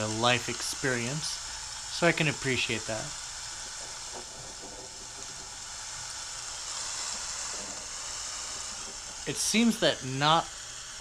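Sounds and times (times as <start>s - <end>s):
falling rain hiss: 0.0s - 11.0s.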